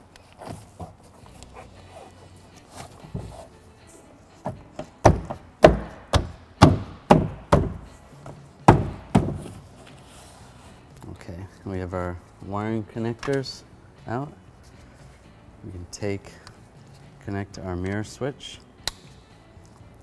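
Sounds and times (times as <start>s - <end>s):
heavy thumps on door panel: 5.0s - 7.9s, 8.7s - 9.5s.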